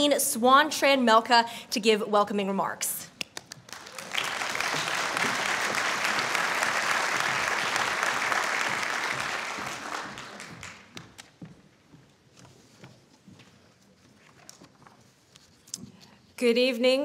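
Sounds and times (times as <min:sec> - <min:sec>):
audience applauding: 0:03.3 - 0:11.2.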